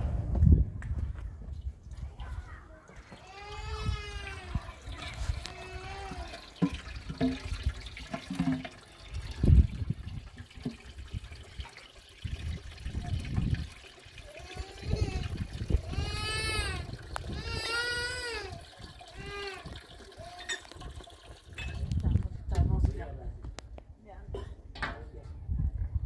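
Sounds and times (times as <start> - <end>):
water running into metal pot: 3.1 - 22.7.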